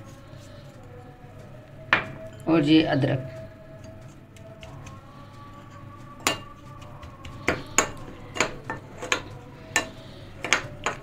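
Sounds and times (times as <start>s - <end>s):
metal spoon clinking against glass bowl: 6.2s - 6.6s, 7.5s - 11.0s.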